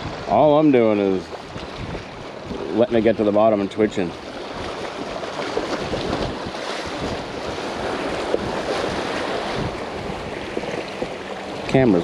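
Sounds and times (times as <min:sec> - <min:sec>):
wind buffeting microphone: 0:00.0 - 0:12.0
small waves splashing on rocks: 0:04.0 - 0:12.0.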